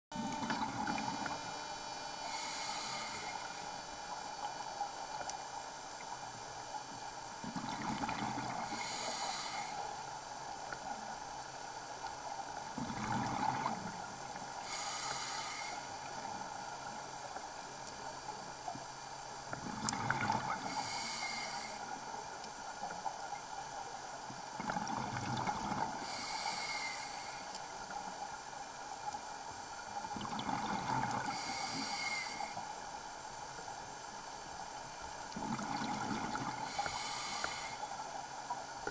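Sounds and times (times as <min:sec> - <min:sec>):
steady hum: 0:00.1 - 0:22.9
exhaled air bubbling underwater: 0:00.2 - 0:17.4, 0:18.4 - 0:32.8, 0:34.9 - 0:38.9
scuba regulator inhalation hiss: 0:00.8 - 0:03.9, 0:08.5 - 0:10.1, 0:14.6 - 0:16.3, 0:20.5 - 0:22.0, 0:26.0 - 0:27.5, 0:31.0 - 0:32.6, 0:36.3 - 0:38.1.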